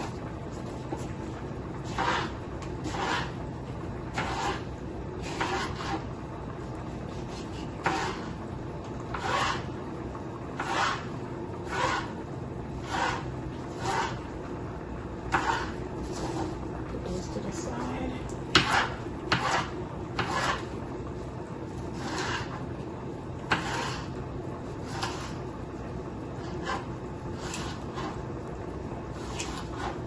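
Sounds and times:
knife slicing peppers on board: 1.9s - 3.3s, 4.1s - 6.0s, 7.1s - 8.4s, 12.8s - 14.2s, 15.3s - 16.6s, 18.5s - 20.7s, 21.9s - 22.6s, 23.5s - 24.1s, 24.8s - 25.4s, 29.2s - 30.0s.

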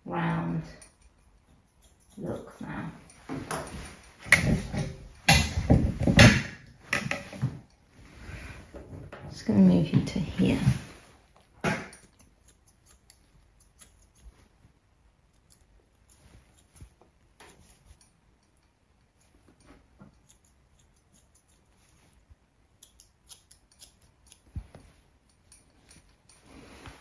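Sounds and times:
grooming scissors snipping: 0.4s - 6.7s, 11.3s - 14.6s, 15.2s - 26.5s.

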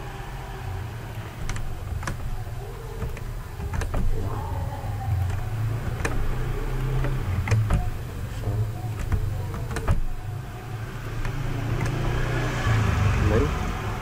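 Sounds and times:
steady low hum: 0.0s - 12.8s
computer mouse and keyboard clicks: 5.2s - 8.0s, 8.9s - 10.1s, 11.1s - 12.2s.

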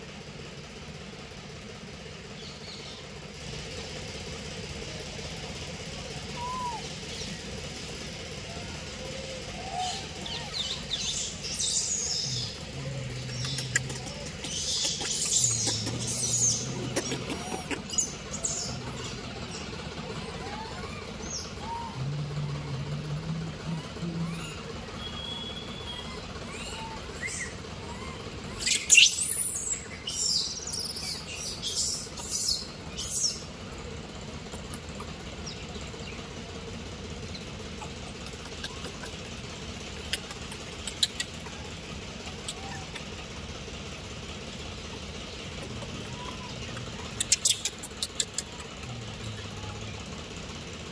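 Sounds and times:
low steady hum: 0.0s - 50.9s
shrill animal calls: 6.2s - 7.4s, 8.6s - 12.7s, 24.2s - 33.4s
high-pitched animal squeaks: 13.4s - 19.1s, 24.0s - 29.5s, 45.8s - 48.8s.

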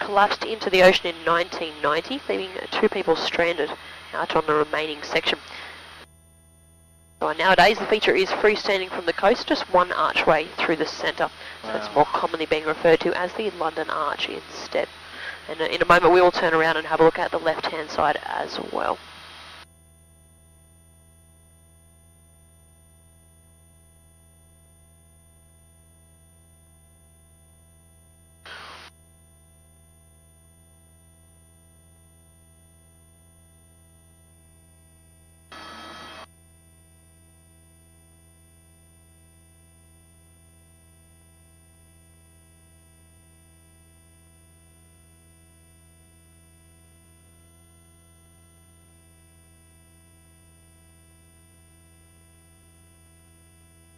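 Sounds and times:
faint intercom hum: 0.0s - 5.8s, 7.2s - 19.0s.

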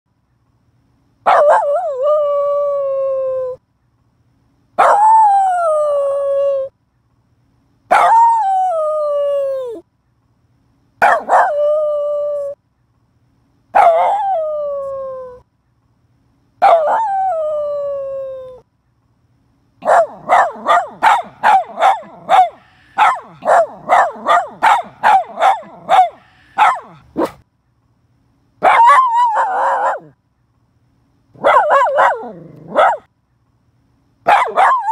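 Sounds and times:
dog barking: 1.2s - 1.8s, 4.8s - 5.0s, 7.9s - 8.2s, 11.0s - 11.6s, 13.8s - 14.2s, 16.6s - 17.1s, 19.8s - 27.4s, 28.6s - 30.2s, 31.4s - 33.1s, 34.2s - 34.9s
dog howling: 4.8s - 6.7s, 13.8s - 15.4s, 16.6s - 18.6s, 28.7s - 30.1s.

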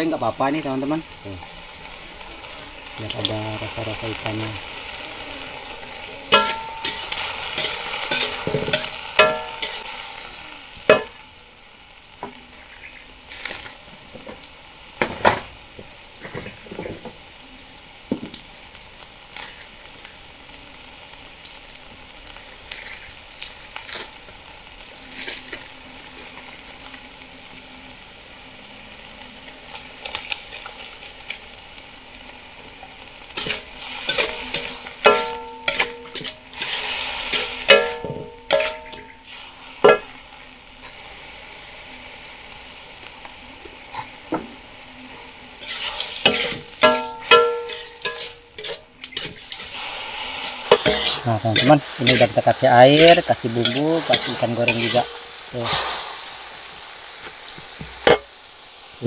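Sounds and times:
food sizzling in a pan: 0.0s - 59.0s
utensil scraping a pan: 45.6s - 56.2s.

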